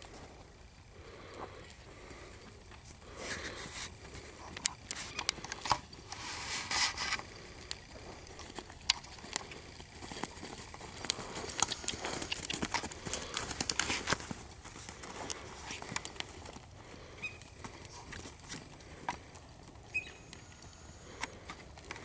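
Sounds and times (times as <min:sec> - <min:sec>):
horse hoofbeats on dirt: 0:07.2 - 0:22.0.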